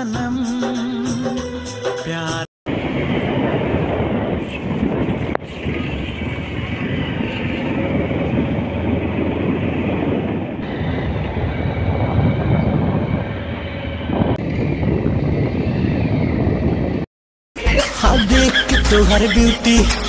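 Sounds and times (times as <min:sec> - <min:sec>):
wind rushing: 0:02.7 - 0:17.1
motorcycle engine: 0:02.8 - 0:17.0.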